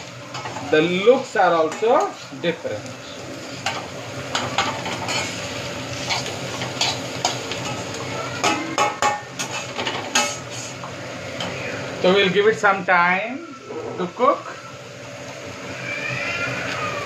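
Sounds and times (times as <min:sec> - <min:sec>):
vegetables sizzling: 0:00.0 - 0:17.0
spatula scraping a metal wok: 0:03.6 - 0:07.8, 0:09.4 - 0:10.8.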